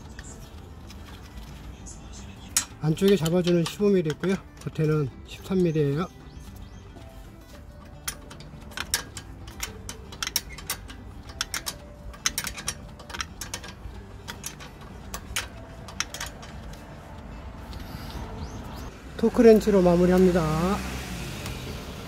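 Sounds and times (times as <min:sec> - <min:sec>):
wrench clinking on bolt: 0:02.4 - 0:06.0, 0:07.8 - 0:16.9
ratcheting wrench clicking: 0:02.5 - 0:05.7, 0:07.9 - 0:16.9.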